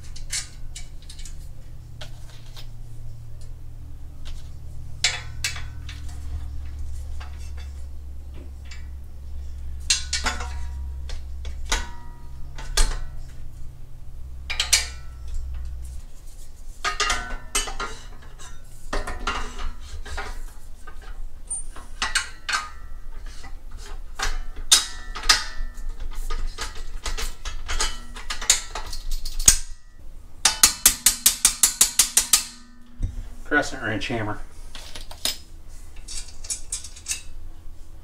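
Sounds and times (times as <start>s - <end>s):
steel parts clinking and knocking: 0.0s - 2.7s, 4.2s - 9.0s, 9.7s - 13.5s, 14.4s - 15.9s, 16.8s - 29.8s, 30.4s - 33.2s, 34.7s - 37.4s
steady low hum: 0.0s - 38.0s
sharp metallic clanks: 5.0s - 13.6s, 14.4s - 15.9s, 16.8s - 23.4s, 24.2s - 33.7s.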